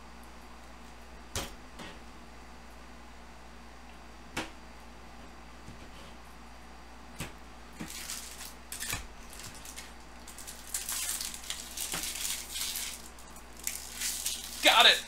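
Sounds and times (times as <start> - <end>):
foil wrappers rustling and crinkling: 7.8 - 15.0.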